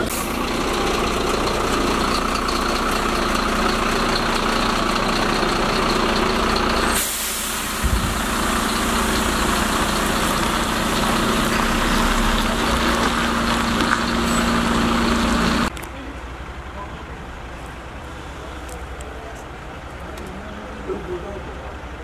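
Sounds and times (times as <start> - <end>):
diesel engine idling: 0.0 - 22.0
bright hiss: 6.9 - 11.9
short low thump: 7.8 - 8.4.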